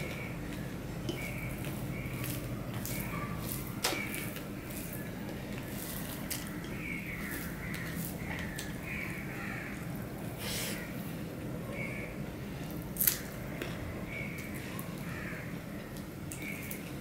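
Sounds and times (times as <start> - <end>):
hand squishing rice: 0.0 - 10.8.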